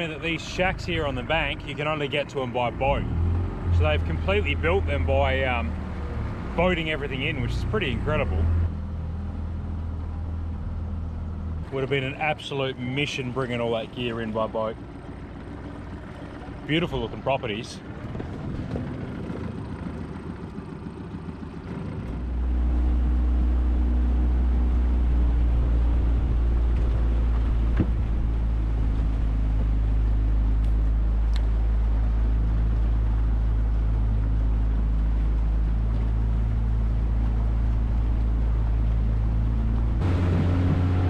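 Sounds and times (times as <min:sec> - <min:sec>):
outboard motor droning: 0:00.0 - 0:41.0
water wash: 0:00.0 - 0:41.0
wind: 0:00.0 - 0:41.0.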